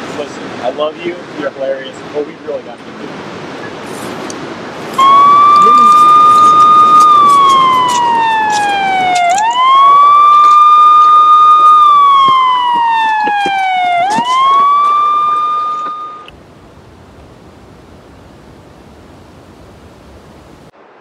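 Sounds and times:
siren wailing: 5.0 - 16.3.

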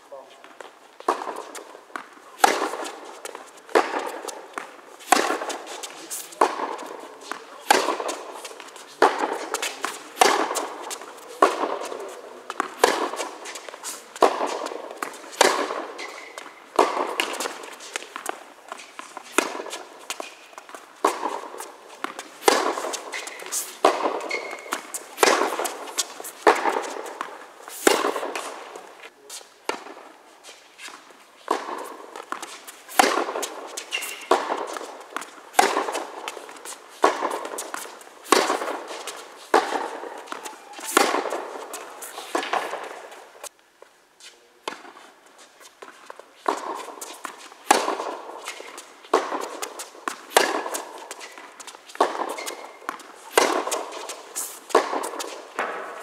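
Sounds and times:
racquets striking tennis ball: 0.4 - 30.2, 30.8 - 43.5, 44.6 - 45.0, 45.7 - 56.0
ball bouncing on hard court: 1.0 - 28.5, 31.5 - 43.0, 46.5 - 56.0.

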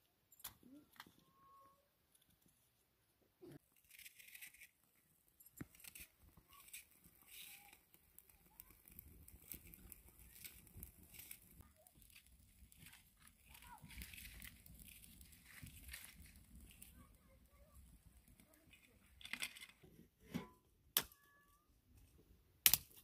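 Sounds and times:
dry sticks clicking: 22.6 - 23.0.

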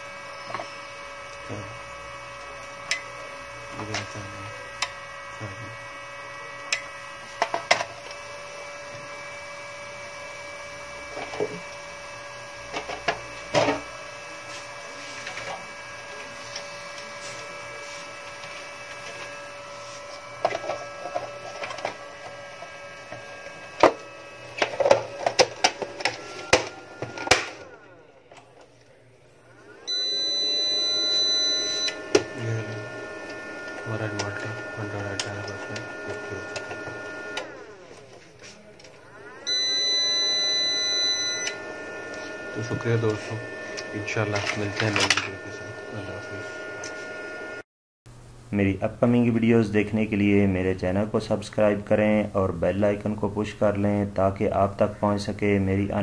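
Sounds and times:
inverter electrical hum: 0.0 - 56.0
whine gliding up in pitch: 29.3 - 37.9, 39.1 - 47.6
high beep: 29.9 - 32.0, 39.5 - 41.6.

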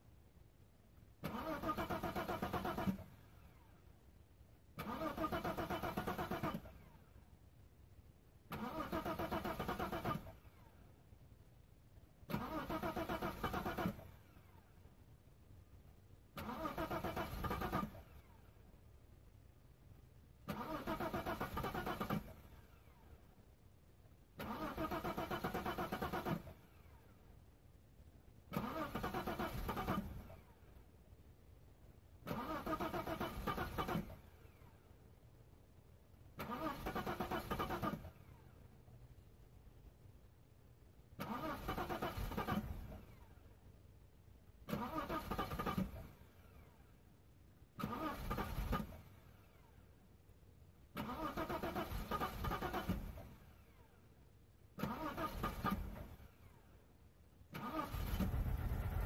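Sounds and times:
engine starter cranking: 1.1 - 3.6, 4.6 - 6.9, 8.5 - 10.6, 12.2 - 14.6, 16.3 - 19.4, 20.4 - 23.0, 24.3 - 27.5, 28.3 - 30.5, 32.2 - 34.9, 36.3 - 38.7, 41.1 - 43.2, 44.6 - 46.7, 47.7 - 49.6, 50.8 - 53.8, 54.7 - 56.5, 57.5 - 59.0.

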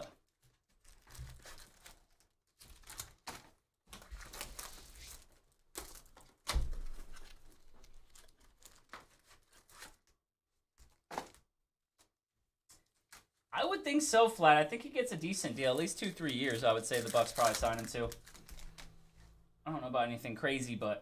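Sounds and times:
plastic wrap crinkling: 0.2 - 10.1, 15.2 - 19.3
cardboard tearing: 16.2 - 18.9.

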